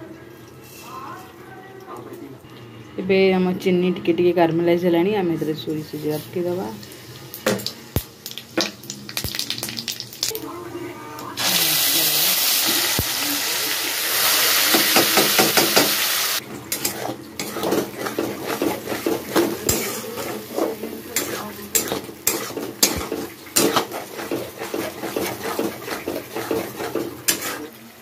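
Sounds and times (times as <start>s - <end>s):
paste sizzling in hot oil: 11.4s - 28.0s
spatula scraping a pan: 16.7s - 27.8s.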